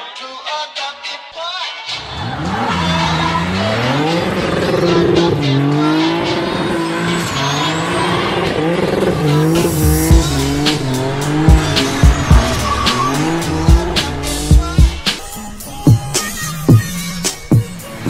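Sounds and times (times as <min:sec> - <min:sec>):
car engine revving: 0:02.0 - 0:18.0
tyres spinning and squealing: 0:02.0 - 0:18.0
sharp exhaust bang: 0:09.3 - 0:15.4.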